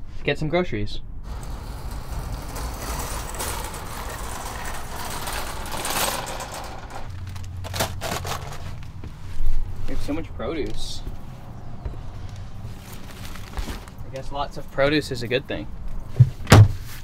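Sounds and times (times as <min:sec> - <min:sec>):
shopping cart rolling over asphalt: 0:01.2 - 0:09.0.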